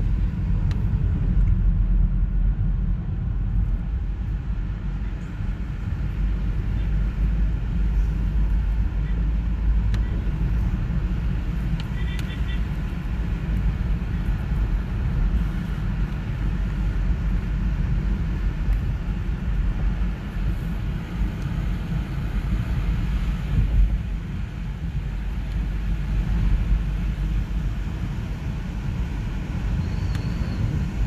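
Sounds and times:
car driving on wet road: 0:00.0 - 0:31.0.

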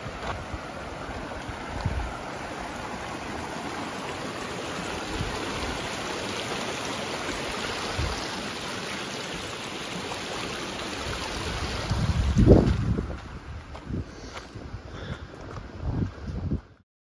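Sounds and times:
creek running over stones: 0:00.0 - 0:14.6.

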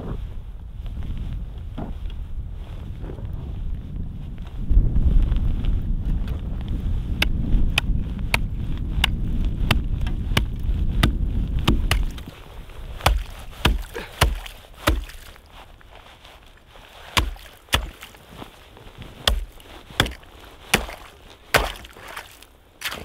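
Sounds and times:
steady low rumble: 0:00.0 - 0:22.8
sharp single knocks: 0:19.3 - 0:22.0.

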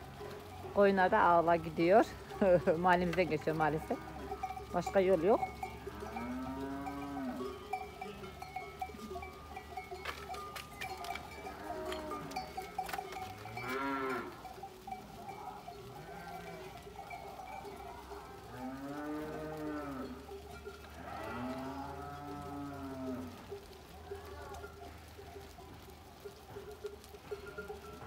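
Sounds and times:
sheep bleating: 0:03.2 - 0:09.3, 0:11.0 - 0:14.5, 0:15.2 - 0:17.4.

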